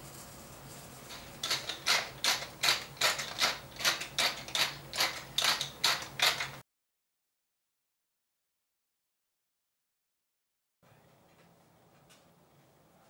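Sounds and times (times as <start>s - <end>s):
pepper mill grinding: 1.0s - 6.6s.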